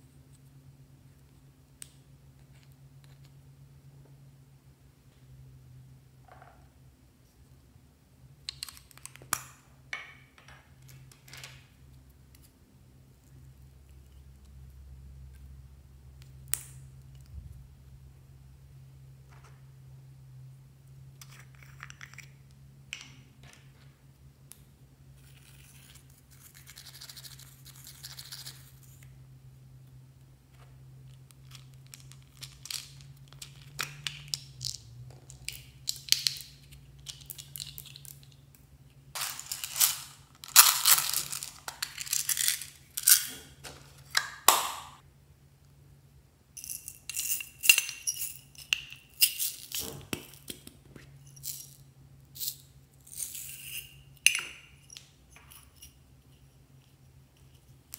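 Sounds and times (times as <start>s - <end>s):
plastic beads rattling: 39.2s - 43.4s.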